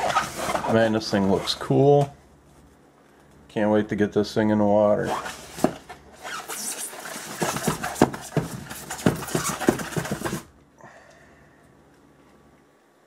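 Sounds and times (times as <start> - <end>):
cardboard box scraping off foam: 5.0 - 10.5
rustling: 5.0 - 10.5.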